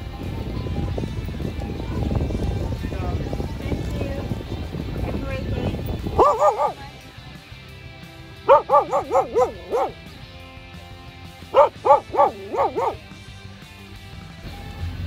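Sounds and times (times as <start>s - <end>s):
faint music: 0.0s - 15.0s
dog barking: 6.0s - 6.9s, 8.4s - 10.0s, 11.5s - 13.1s.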